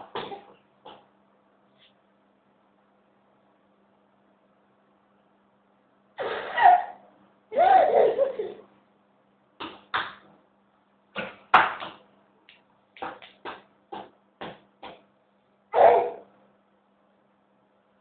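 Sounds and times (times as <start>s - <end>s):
baby laughing: 6.2s - 8.7s, 15.8s - 16.3s.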